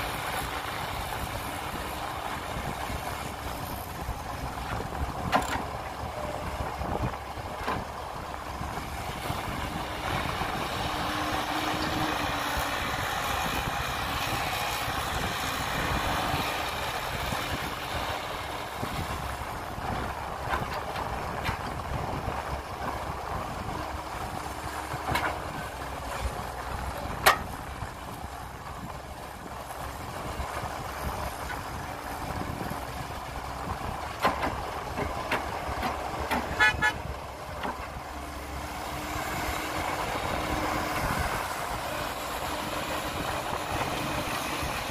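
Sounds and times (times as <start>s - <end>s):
heavy machinery engine drone: 0.0s - 44.9s.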